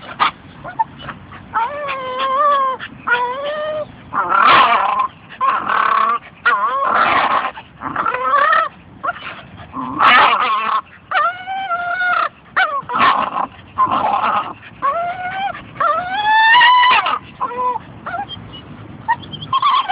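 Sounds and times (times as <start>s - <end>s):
dog whining and yelping: 0.0s - 19.9s.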